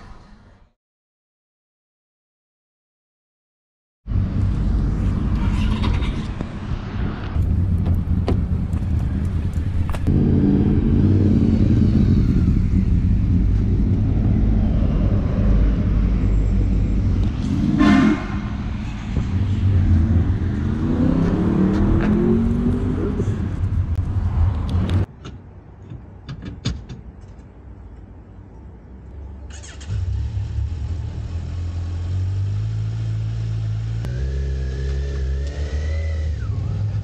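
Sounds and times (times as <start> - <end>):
vehicle engine running: 7.4 - 18.0
short horn-like tone: 17.8 - 18.6.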